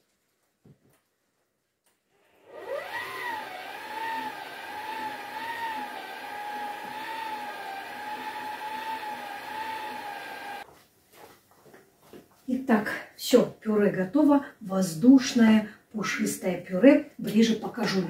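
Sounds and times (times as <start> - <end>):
stand mixer motor whining: 2.4 - 10.6.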